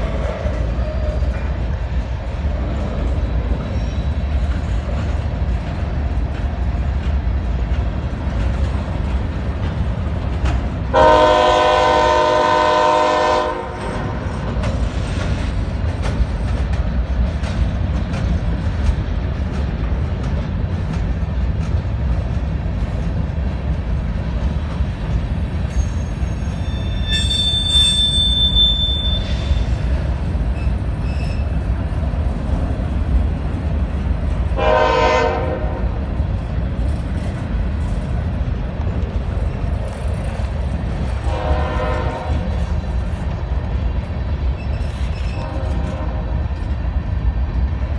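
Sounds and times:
freight train wheels rumbling: 0:00.0 - 0:47.9
high wheel squeal: 0:03.4 - 0:04.6, 0:22.3 - 0:24.8, 0:25.5 - 0:32.2, 0:44.5 - 0:45.8
train horn blast: 0:10.9 - 0:14.3, 0:34.6 - 0:36.0, 0:41.2 - 0:42.6, 0:45.4 - 0:46.3.

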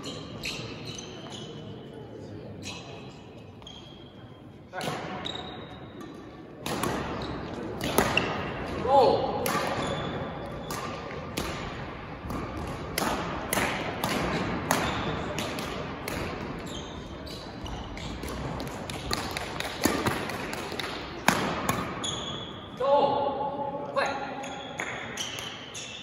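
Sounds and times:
racket hitting shuttlecock: 0:06.0 - 0:08.8, 0:09.4 - 0:16.6, 0:17.3 - 0:22.3.

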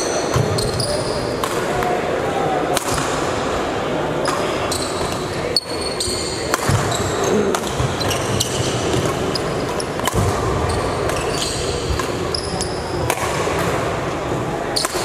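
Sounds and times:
shoes squeaking on court floor: 0:00.0 - 0:01.4, 0:04.2 - 0:13.0
background noise: 0:00.0 - 0:15.0
racket striking shuttlecock: 0:02.7 - 0:03.1, 0:06.5 - 0:11.3.

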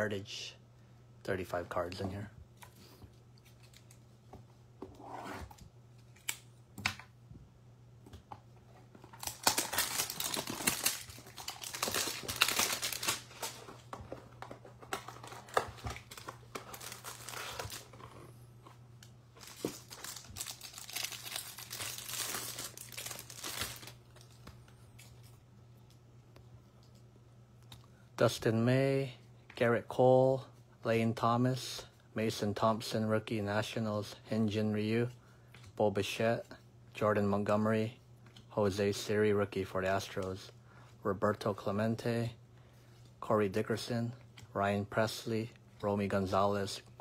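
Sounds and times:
wrapping crackling and tearing: 0:09.0 - 0:13.8, 0:14.8 - 0:18.1, 0:19.4 - 0:24.4.

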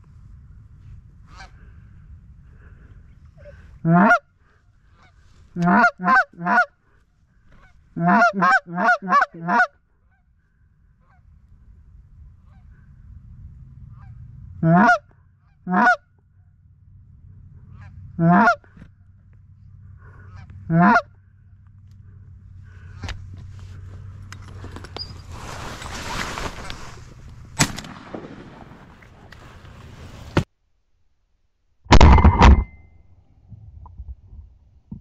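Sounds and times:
goose honking: 0:01.3 - 0:01.7, 0:03.4 - 0:06.8, 0:07.5 - 0:10.3, 0:13.9 - 0:16.1, 0:17.6 - 0:18.9, 0:20.0 - 0:21.2.

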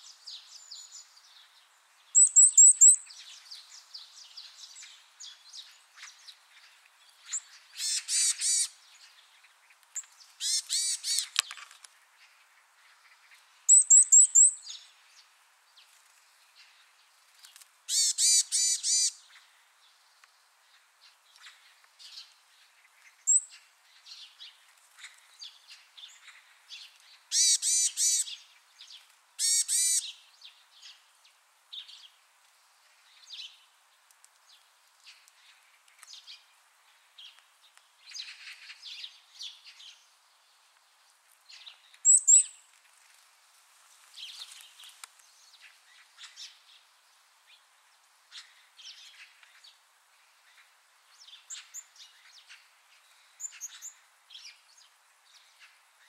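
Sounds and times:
songbird calling: 0:00.0 - 0:15.3, 0:17.9 - 0:31.0, 0:41.5 - 0:42.7, 0:50.4 - 0:56.0.

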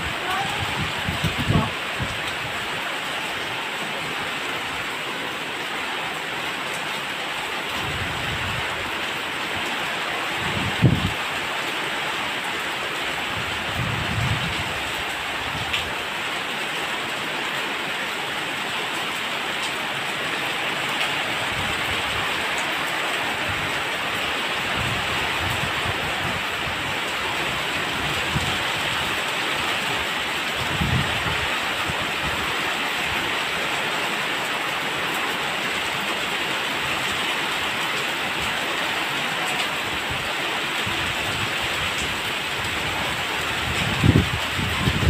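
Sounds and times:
strong wind: 0:00.0 - 0:05.0, 0:07.6 - 0:11.6, 0:13.0 - 0:16.2, 0:20.4 - 0:33.4, 0:39.2 - 0:45.0
heavy rain splashing on ground: 0:00.0 - 0:45.0.

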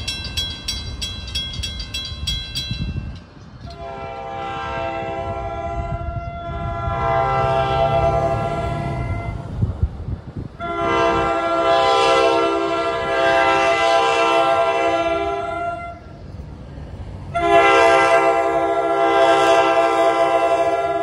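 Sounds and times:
train rumbling: 0:00.0 - 0:21.0
train horn chord blasts: 0:03.8 - 0:09.5, 0:10.6 - 0:16.0, 0:17.3 - 0:21.0.

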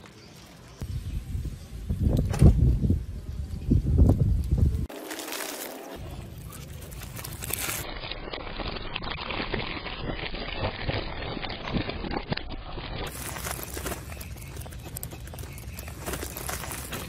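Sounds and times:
paper lanterns crackling: 0:04.5 - 0:17.0.

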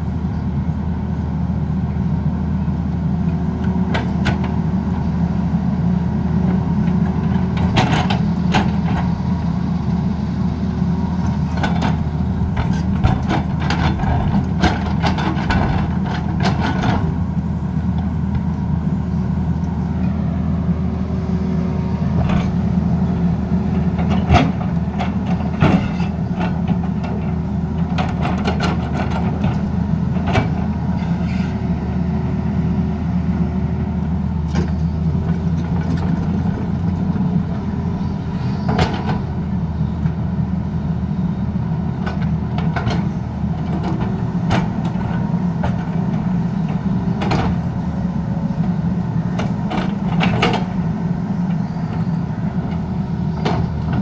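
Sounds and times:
excavator diesel engine running: 0:00.0 - 0:54.0
excavator bucket clanking: 0:06.9 - 0:09.1, 0:11.3 - 0:17.3, 0:23.7 - 0:31.2, 0:38.6 - 0:39.4, 0:42.0 - 0:47.7, 0:49.2 - 0:50.8.

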